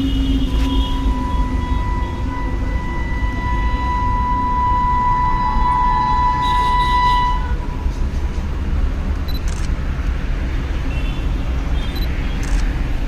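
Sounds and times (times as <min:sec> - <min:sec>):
distant train horn: 0:00.0 - 0:07.9.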